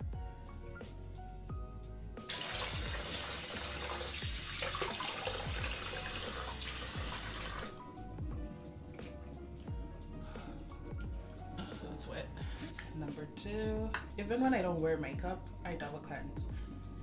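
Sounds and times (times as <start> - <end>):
background music with steady beat: 0.0 - 17.0
tap running into sink: 2.3 - 7.7.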